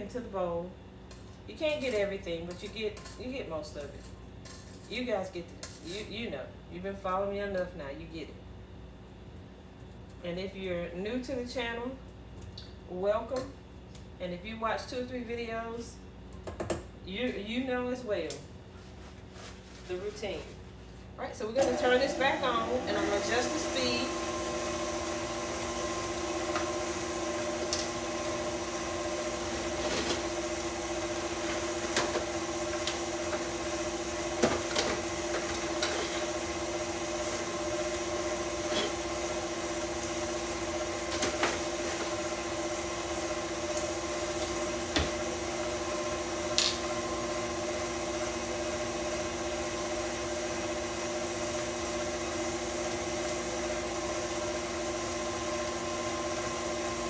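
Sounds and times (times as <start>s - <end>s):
stand mixer motor hum: 21.6s - 57.0s.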